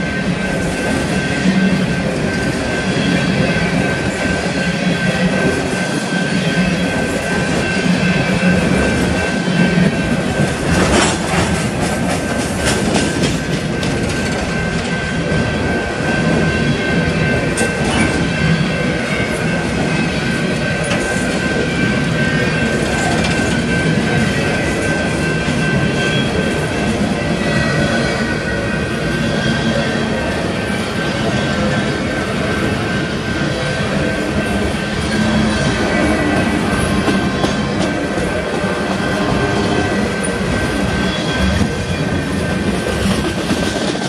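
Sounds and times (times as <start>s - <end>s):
freight train rolling rumble: 0.0s - 44.0s
wheels clicking over rail joints: 7.0s - 28.5s
high wheel squeal: 20.8s - 42.7s.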